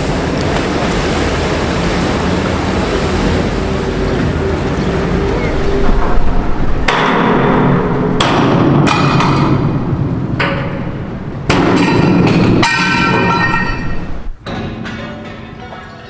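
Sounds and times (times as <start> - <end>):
hammer striking metal blocks: 11.5 - 15.7.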